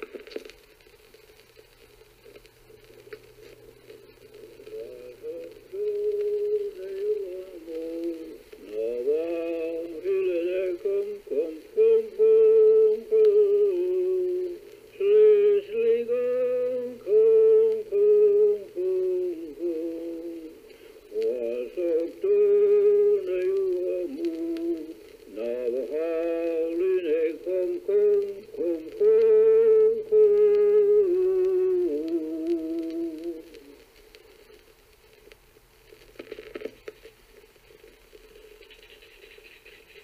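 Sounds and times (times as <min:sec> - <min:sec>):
faint low hum: 0:00.0 - 0:40.0
person singing unaccompanied: 0:04.4 - 0:33.8.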